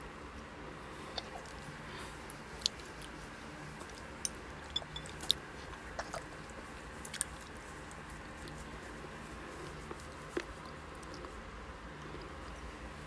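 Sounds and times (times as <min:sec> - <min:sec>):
faint background hum: 0:00.0 - 0:13.0
toddler chewing food: 0:00.4 - 0:13.0
wet clicks and smacks: 0:04.8 - 0:08.6.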